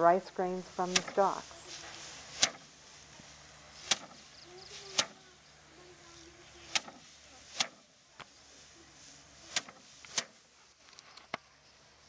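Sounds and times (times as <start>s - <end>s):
rice stalks whacked on wooden table: 2.3s - 2.7s, 3.8s - 4.2s, 4.9s - 5.2s, 6.7s - 7.8s, 9.5s - 10.4s.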